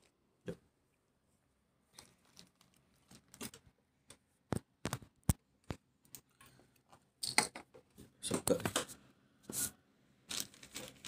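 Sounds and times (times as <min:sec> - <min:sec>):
plastic bag crinkling: 0:01.9 - 0:03.6, 0:10.3 - 0:11.0.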